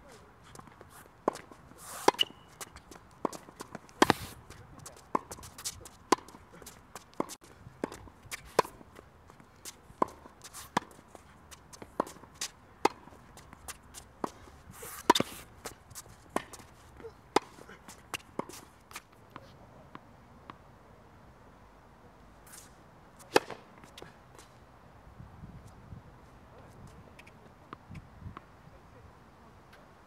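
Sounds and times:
tennis balls struck and bouncing: 0.6s - 9.0s, 9.9s - 20.6s, 23.2s - 24.5s.

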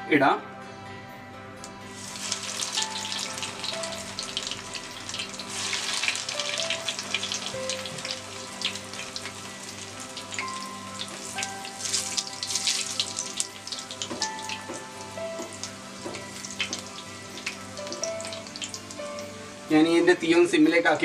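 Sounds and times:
food deep-frying in oil: 2.0s - 19.7s.

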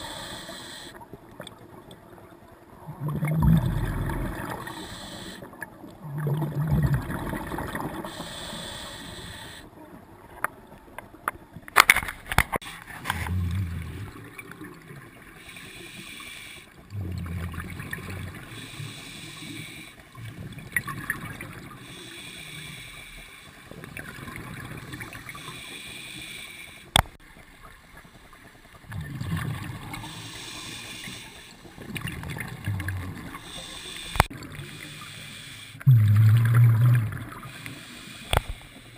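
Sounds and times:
regulator breathing hiss: 0.0s - 1.0s, 4.5s - 5.5s, 8.0s - 9.7s, 15.4s - 16.8s, 18.4s - 20.1s, 21.8s - 23.6s, 25.3s - 26.9s, 30.0s - 31.8s, 33.3s - 35.9s, 37.4s - 38.9s
gurgling bubbles: 0.0s - 10.3s, 13.0s - 15.5s, 16.8s - 25.6s, 26.9s - 35.0s, 35.8s - 38.6s.

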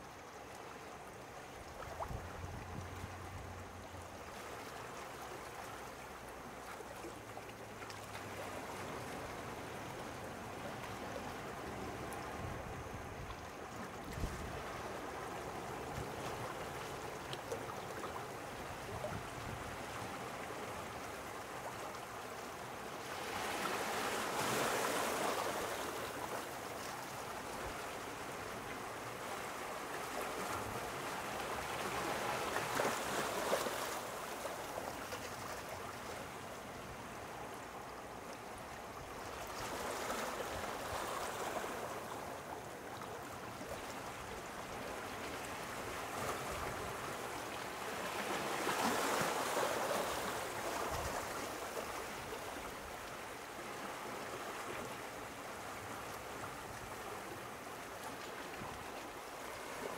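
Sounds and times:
small sea waves washing in: 1.7s - 59.9s.

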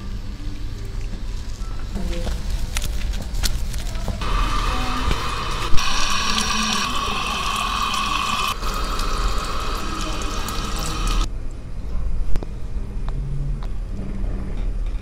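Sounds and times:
shower head spraying water: 4.2s - 11.3s.

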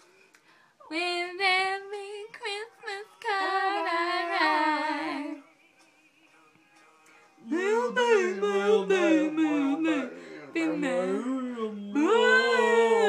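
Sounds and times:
woman singing: 0.8s - 5.4s, 7.5s - 13.0s.

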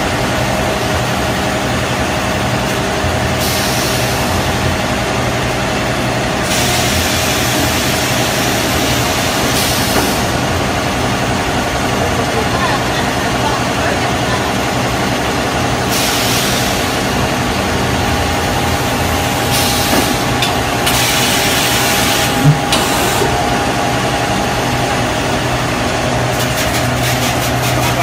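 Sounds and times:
machine humming: 16.8s - 26.4s.

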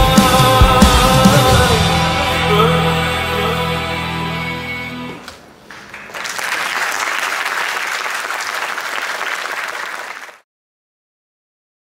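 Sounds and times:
recorded song: 0.0s - 6.4s
audience applauding: 5.7s - 10.4s.

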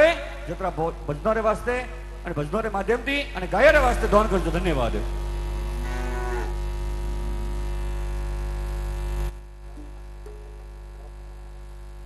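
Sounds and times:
mains hum: 0.0s - 12.0s
sustained musical tones: 9.8s - 10.9s.

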